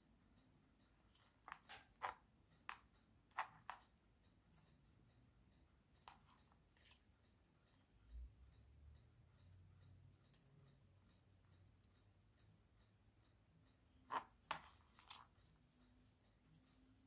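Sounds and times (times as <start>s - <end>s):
handling clicks and scratches: 14.1s - 15.5s.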